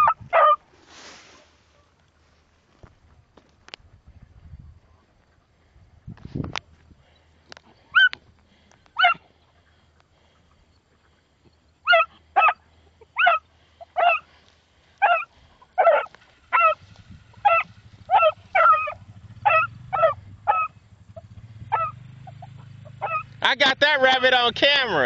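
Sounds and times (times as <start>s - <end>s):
hound baying: 0.0s - 0.7s, 7.8s - 8.2s, 8.9s - 9.6s, 11.8s - 23.4s.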